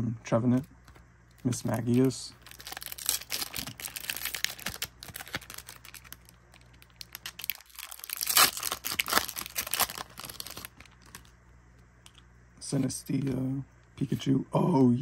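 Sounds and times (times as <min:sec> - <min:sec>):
cards rustling: 0:00.5 - 0:11.4
foil wrapper crinkling: 0:00.8 - 0:11.4
foil tearing open: 0:01.8 - 0:11.3.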